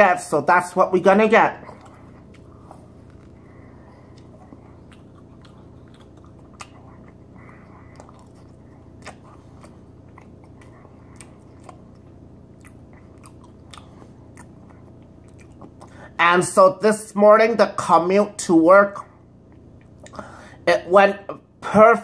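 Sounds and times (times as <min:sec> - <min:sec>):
person chewing wet mouth clicks: 0:04.1 - 0:16.0.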